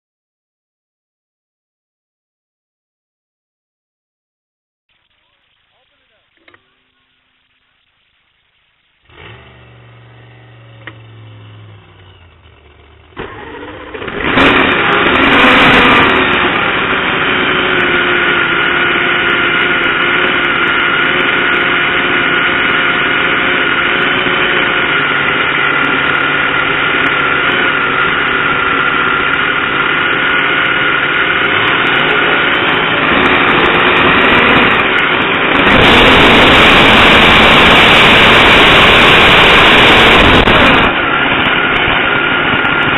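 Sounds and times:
drag racing engine cranking: 0:09.0 - 0:42.9
drag racing engine idling: 0:09.0 - 0:42.9.

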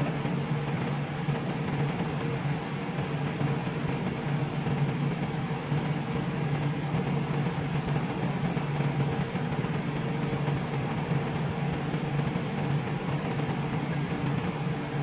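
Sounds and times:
low mechanical hum and whir: 0:00.0 - 0:15.0.

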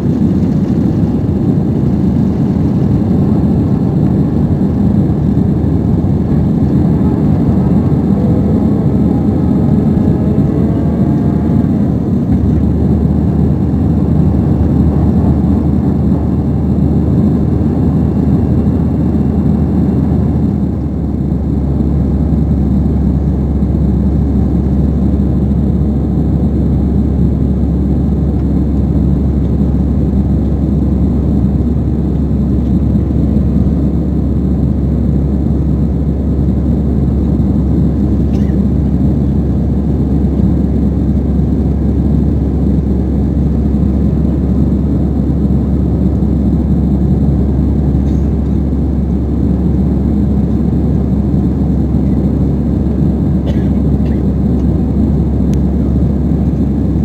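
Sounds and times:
jet engines drone: 0:00.0 - 0:57.0.

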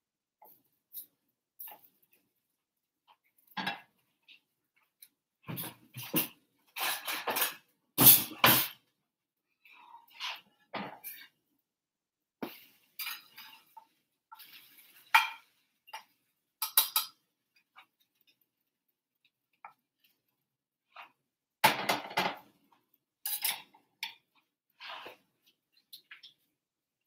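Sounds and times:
metal tongs clinking on frying pan: 0:16.6 - 0:17.2, 0:23.3 - 0:24.2.

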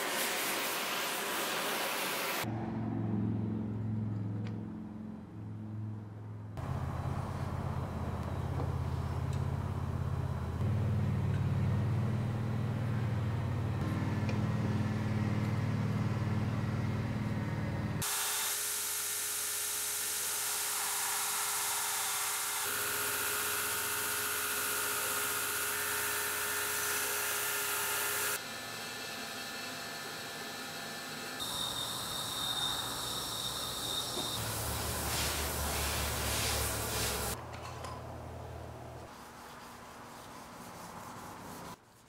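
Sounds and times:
loud low hum: 0:02.5 - 0:18.0
belt grinder grinding: 0:20.2 - 0:28.4.

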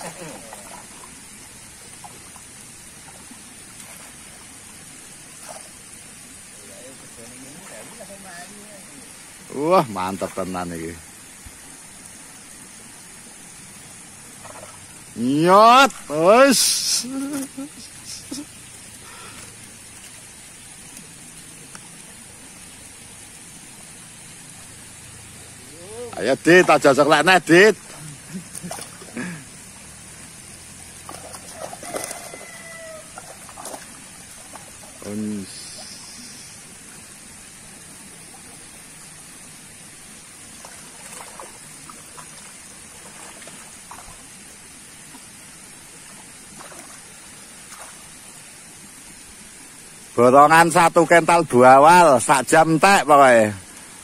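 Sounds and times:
water sloshing in pond: 0:00.0 - 0:09.5, 0:11.0 - 0:15.2, 0:17.0 - 0:50.2
even hiss: 0:00.0 - 0:54.0
fish splashing at surface: 0:30.6 - 0:35.0.

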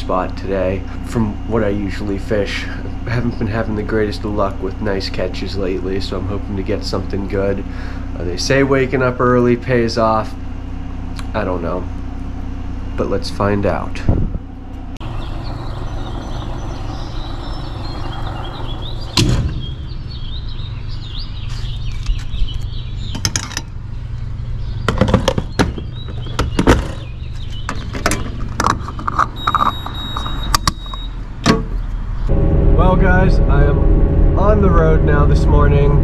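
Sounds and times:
fuel pump humming: 0:00.0 - 0:21.5
high steady beep: 0:29.4 - 0:31.2.

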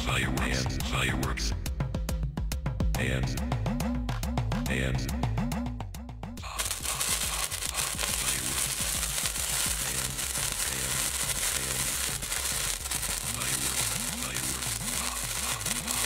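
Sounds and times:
background music: 0:00.0 - 0:16.0
sparkler fizzing and crackling: 0:06.4 - 0:16.0.

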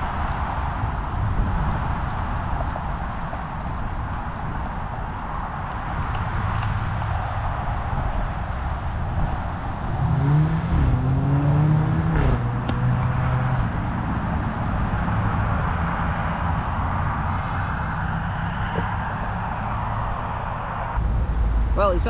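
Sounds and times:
road traffic tyre and engine noise: 0:00.0 - 0:22.0
car engine rising in pitch: 0:05.8 - 0:21.8.

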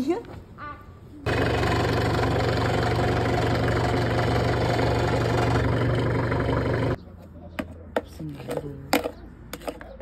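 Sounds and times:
forklift engine idling: 0:01.3 - 0:07.0.

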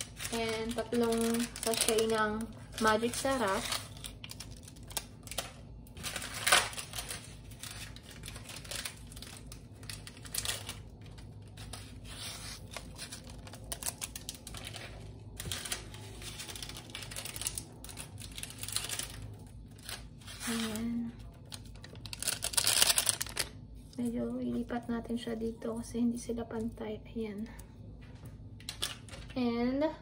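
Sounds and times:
plastic sachets tearing and crinkling: 0:00.0 - 0:24.0, 0:28.6 - 0:29.3.

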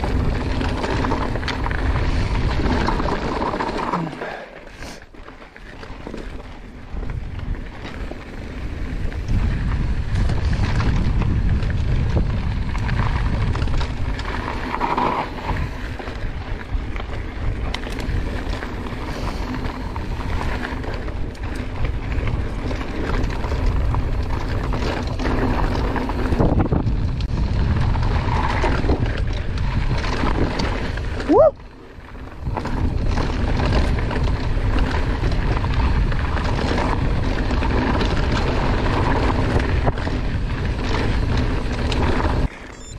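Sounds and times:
wind rushing over microphone: 0:00.0 - 0:04.1, 0:06.8 - 0:42.9
tyres rumbling over dirt and rock: 0:00.0 - 0:42.7
bike clicks and knocks: 0:05.2 - 0:31.3.

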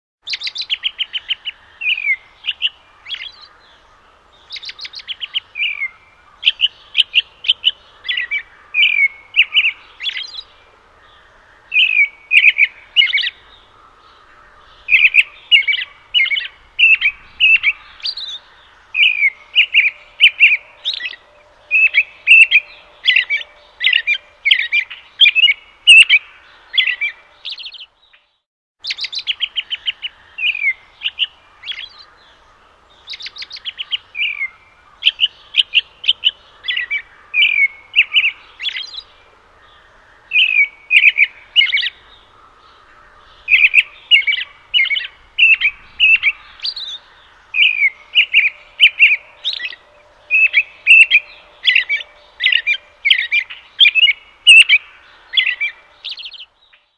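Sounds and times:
robin chirping and chattering: 0:28.8 - 0:32.1, 0:43.4 - 0:56.5.

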